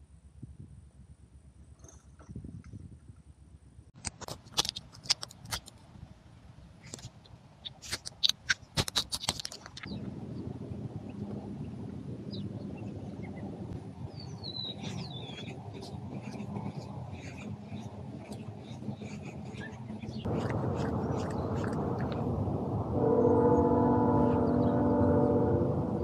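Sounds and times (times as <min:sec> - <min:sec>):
cat claws scratching bark: 0:04.0 - 0:05.9, 0:06.8 - 0:09.9, 0:14.8 - 0:22.3
faint bird chirps: 0:14.1 - 0:15.6.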